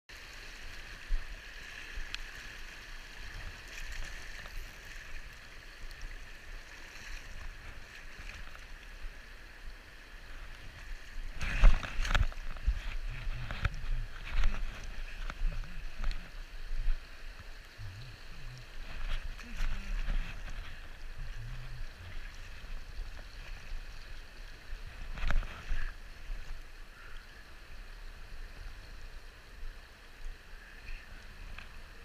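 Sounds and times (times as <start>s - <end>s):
river water rushing over rocks: 0.1s - 32.0s.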